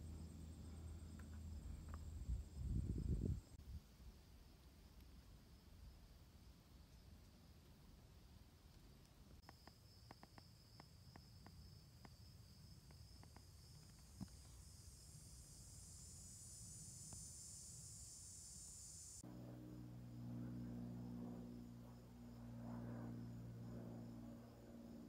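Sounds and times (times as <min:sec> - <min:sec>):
low steady hum: 0:00.0 - 0:25.0
insects trilling: 0:09.2 - 0:25.0.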